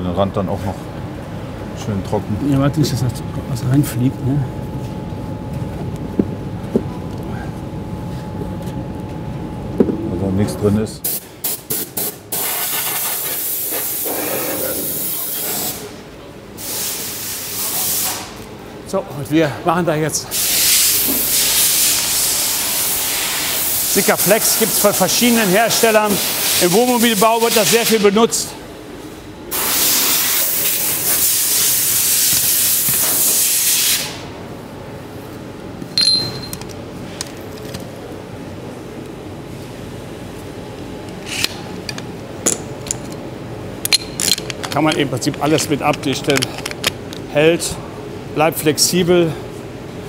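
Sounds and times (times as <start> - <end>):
pressurised air hissing: 16.6 - 18.4, 20.3 - 24.8, 29.5 - 34.3
compressed air blow gun hissing: 20.3 - 23.9
sharp click with ringing tone: 36.0 - 36.7.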